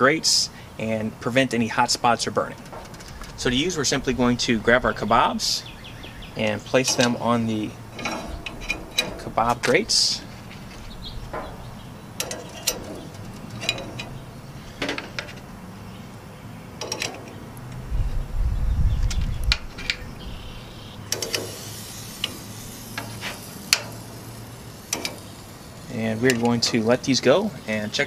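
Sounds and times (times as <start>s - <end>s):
metal skewers clinking on rack: 6.3s - 15.5s, 16.8s - 17.5s, 21.1s - 27.2s.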